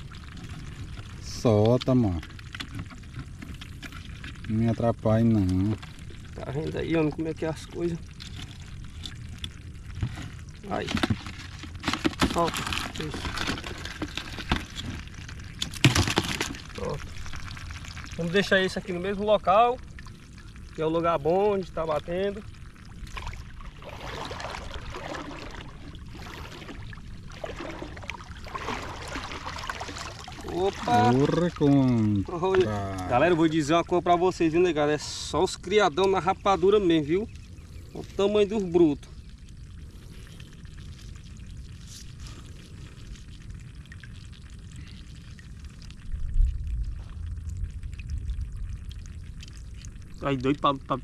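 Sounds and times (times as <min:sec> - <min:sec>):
water sloshing and splashing: 0:00.0 - 0:51.0
low rumble: 0:39.0 - 0:51.0.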